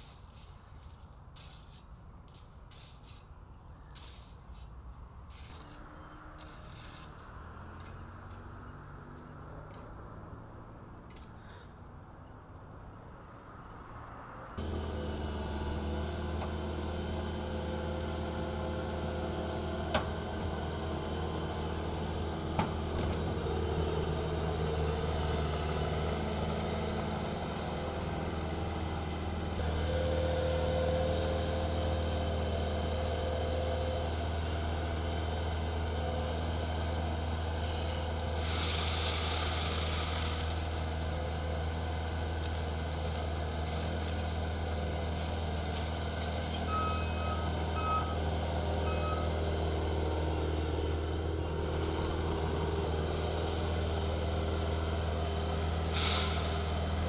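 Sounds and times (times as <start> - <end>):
diesel engine running: 14.6 - 57.0
gravel pouring from bucket: 38.4 - 40.7, 55.9 - 57.0
reversing alarm beeps: 46.7 - 48.2, 48.8 - 49.4.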